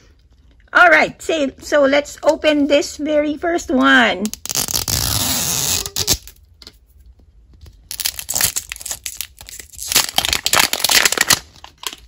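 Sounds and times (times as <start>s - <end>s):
plastic shrink-wrap crinkling: 7.7s - 12.0s.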